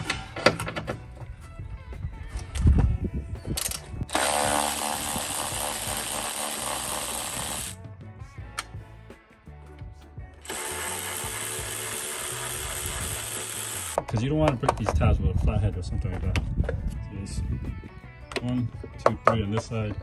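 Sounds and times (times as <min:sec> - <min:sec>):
background music: 0:00.0 - 0:20.0
cordless ratchet running: 0:03.6 - 0:07.8, 0:10.4 - 0:14.0.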